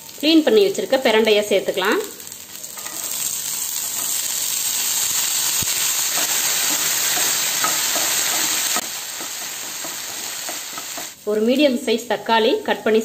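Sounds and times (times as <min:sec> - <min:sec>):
food sizzling in hot oil: 0:00.0 - 0:11.6
spatula scraping pan: 0:02.8 - 0:11.2.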